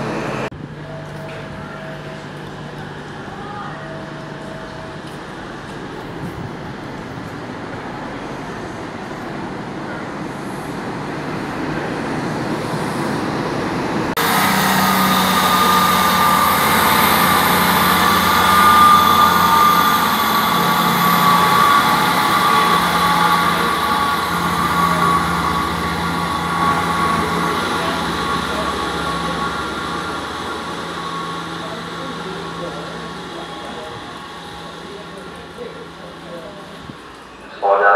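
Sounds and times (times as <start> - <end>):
diesel train engine hum: 0.0 - 37.9
wheel and rail rumble: 0.0 - 37.9
engine whine: 11.5 - 37.9.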